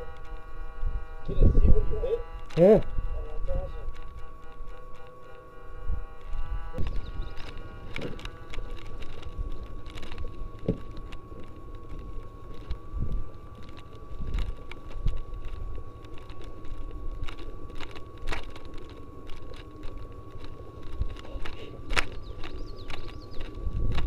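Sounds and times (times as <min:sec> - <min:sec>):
wind rumble on microphone: 0:00.0 - 0:24.0
gear rattling: 0:06.3 - 0:24.0.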